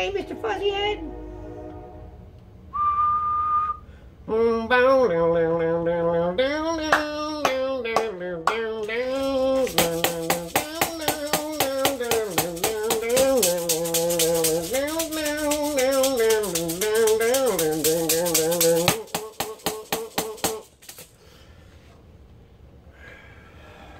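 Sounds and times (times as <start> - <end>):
man singing wordless blues: 4.2 - 20.7
maracas shaken: 8.0 - 21.3.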